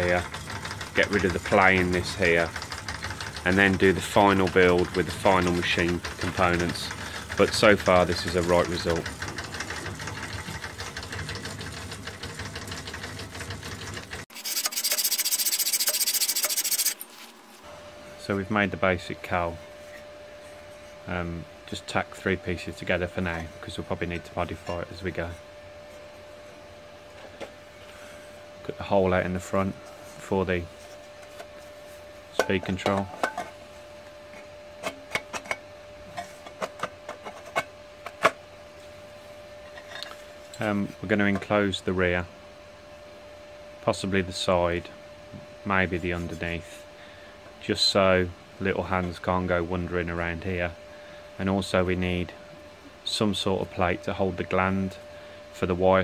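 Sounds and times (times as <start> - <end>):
motorised fret saw running: 0.0 - 17.0
fast rasping strokes: 14.3 - 17.1.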